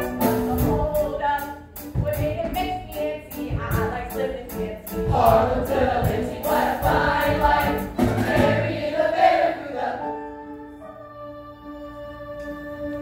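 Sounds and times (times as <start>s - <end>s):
instrumental accompaniment with beat: 0.0s - 10.8s
chorus singing: 5.1s - 11.9s.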